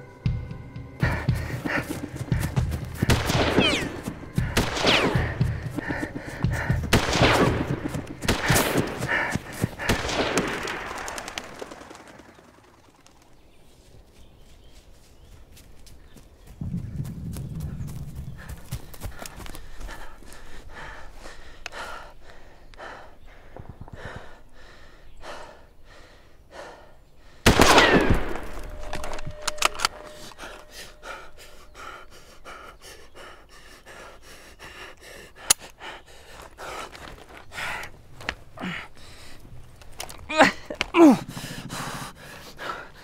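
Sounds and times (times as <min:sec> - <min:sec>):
man panting: 0:01.0 - 0:03.2, 0:05.2 - 0:10.2, 0:17.6 - 0:27.5, 0:30.3 - 0:43.0.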